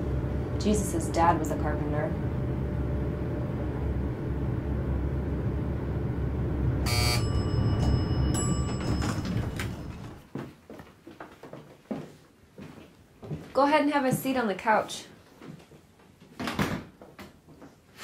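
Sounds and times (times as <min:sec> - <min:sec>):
elevator humming: 0:00.0 - 0:10.3
elevator arrival chime: 0:06.7 - 0:10.3.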